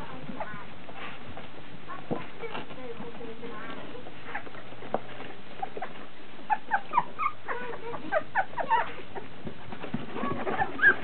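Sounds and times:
puppies squeaking and whimpering: 4.2s - 11.0s.

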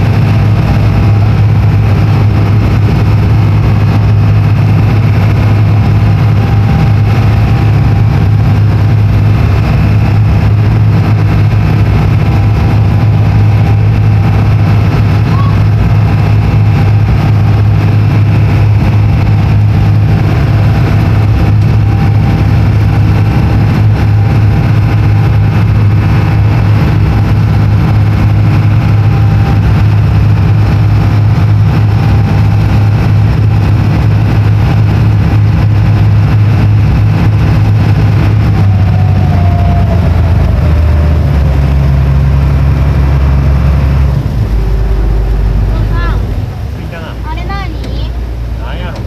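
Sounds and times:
boat engine running: 0.0s - 49.0s.

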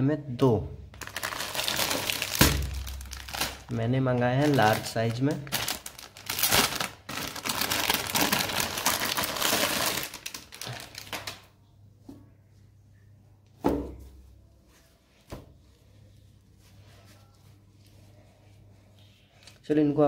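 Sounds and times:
plastic bag crinkling: 1.0s - 11.5s.

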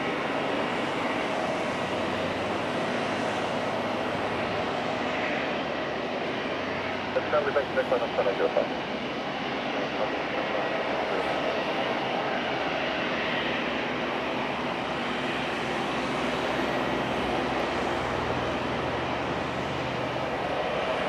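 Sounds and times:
jet engines running: 0.0s - 21.0s.

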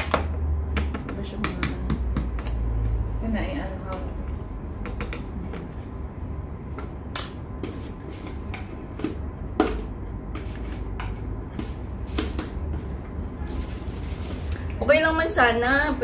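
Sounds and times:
containers knocking and clicking: 0.0s - 2.7s, 3.8s - 5.8s, 6.7s - 13.2s
steady low hum: 0.0s - 16.0s.

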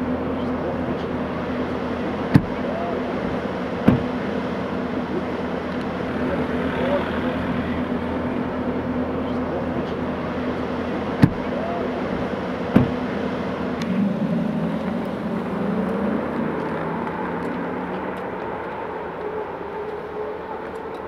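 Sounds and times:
electric car hum and whine: 0.0s - 21.0s
car doors shutting: 2.2s - 4.3s, 11.1s - 18.8s.

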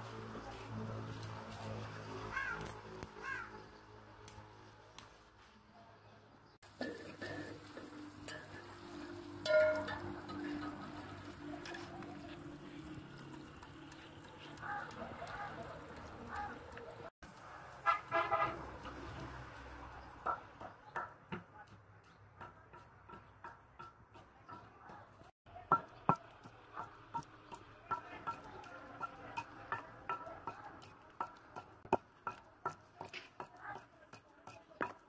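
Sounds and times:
wooden pestle pounding stone mortar: 13.4s - 16.8s, 20.0s - 35.0s.

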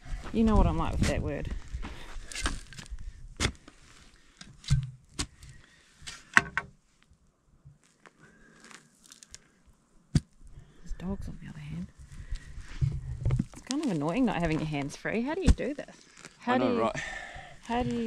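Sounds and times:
boots and hands moving stony soil: 0.0s - 6.3s, 7.8s - 9.5s, 11.8s - 16.6s, 17.6s - 18.0s.

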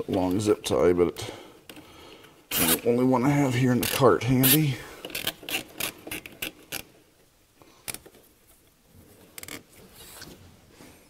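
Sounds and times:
rustling: 7.7s - 11.0s.

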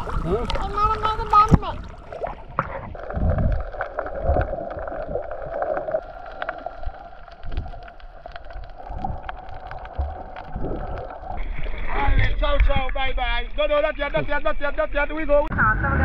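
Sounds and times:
irregular low thumps: 1.5s - 5.2s.

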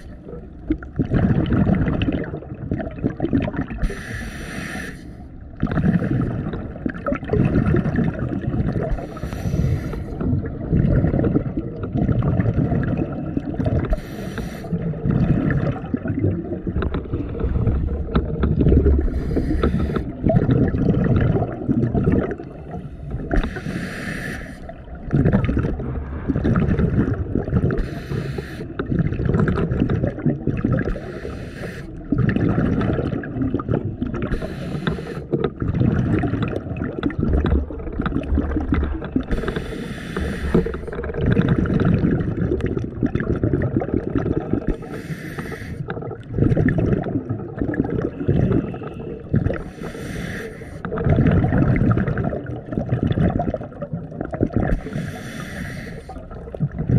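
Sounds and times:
exhaled bubbles gurgling: 0.0s - 56.9s
regulator inhale hiss: 3.8s - 5.3s, 8.9s - 10.2s, 13.9s - 14.8s, 19.0s - 20.2s, 22.9s - 24.7s, 27.8s - 28.8s, 30.9s - 32.0s, 34.3s - 35.4s, 39.3s - 40.9s, 44.7s - 45.9s, 48.7s - 50.9s, 54.8s - 56.2s.

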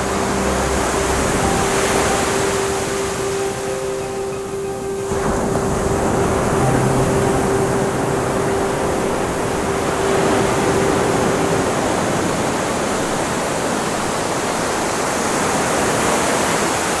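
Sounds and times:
faint steady tone: 0.0s - 16.6s
wind roaring: 0.0s - 17.0s.

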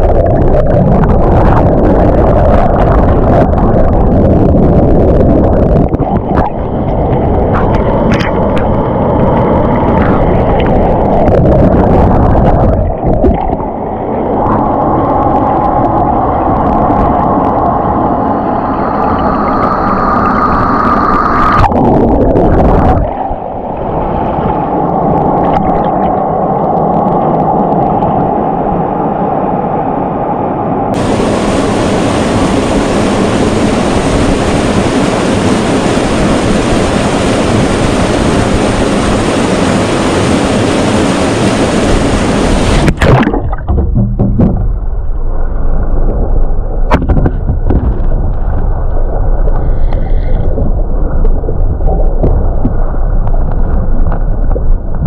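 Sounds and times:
waterfall rushing: 31.0s - 43.4s.

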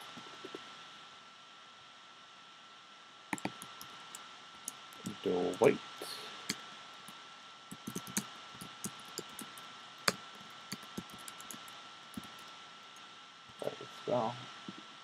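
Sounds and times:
faint steady hiss: 0.0s - 15.0s
keyboard keystrokes clicking: 3.4s - 3.9s, 7.7s - 12.5s.

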